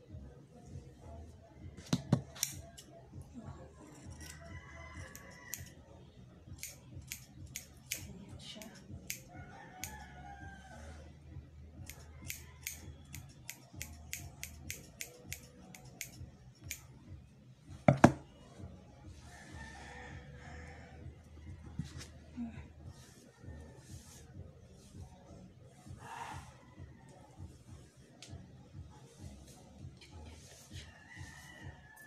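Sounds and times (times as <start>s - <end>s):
scissors snipping hair: 2.2s - 2.9s, 6.6s - 10.0s, 11.8s - 16.9s
rooster crowing: 4.1s - 5.7s, 9.3s - 11.0s, 19.2s - 21.1s, 30.8s - 32.0s.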